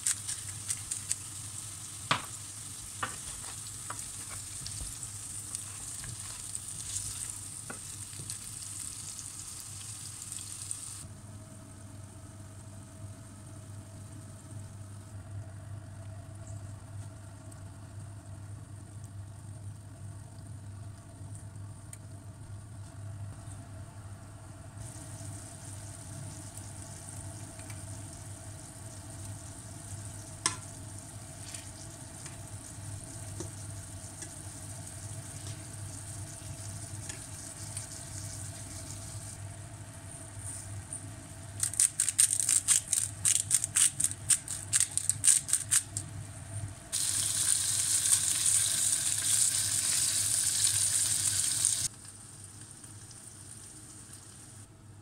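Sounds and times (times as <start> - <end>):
oil crackling and popping: 0.0 - 11.0, 24.8 - 39.4, 41.5 - 46.2, 46.9 - 54.2
chicken sizzling in a pan: 0.0 - 11.1, 24.8 - 54.7.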